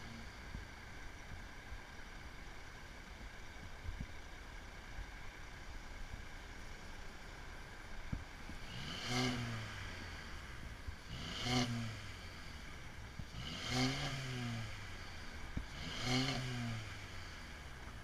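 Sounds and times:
car engine revving: 8.5 - 18.0.

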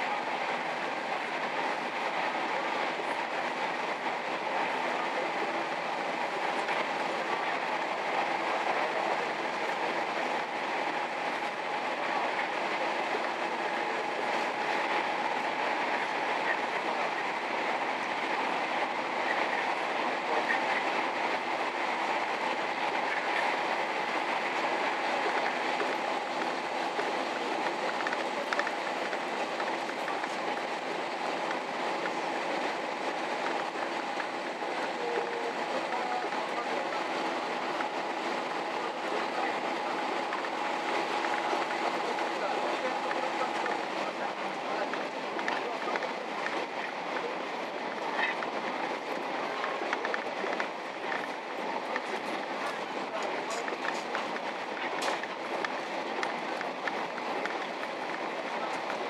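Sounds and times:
train engine and wheels rumbling: 0.0 - 59.0.

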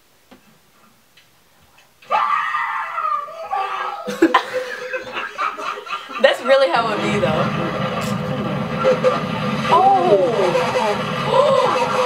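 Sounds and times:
person screaming: 2.1 - 4.2, 9.7 - 12.0
laughter: 4.0 - 6.5.

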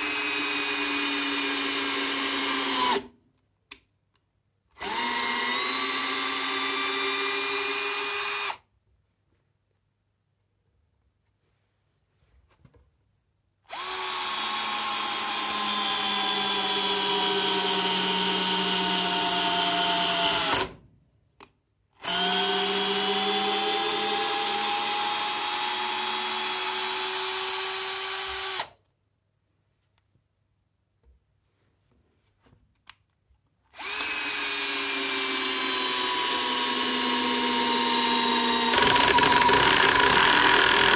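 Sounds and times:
cordless drill motor whine: 4.8 - 8.5, 13.7 - 20.6, 22.0 - 28.6, 33.8 - 40.9
drill click: 33.8 - 40.9.

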